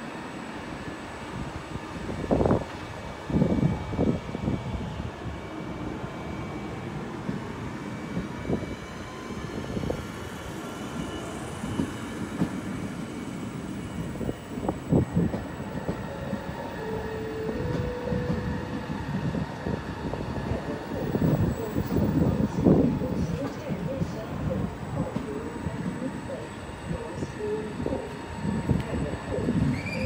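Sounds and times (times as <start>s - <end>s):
electric train rumbling: 0.0s - 30.0s.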